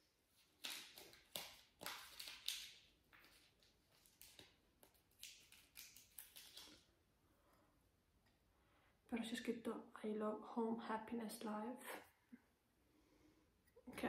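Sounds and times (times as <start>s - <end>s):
packaging rustling and crinkling: 0.3s - 6.9s.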